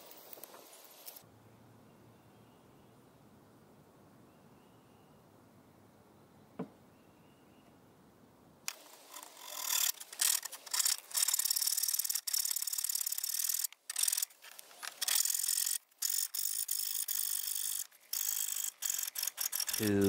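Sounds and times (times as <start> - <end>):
hacksaw cutting metal: 9.1 - 14.3, 15.0 - 20.0.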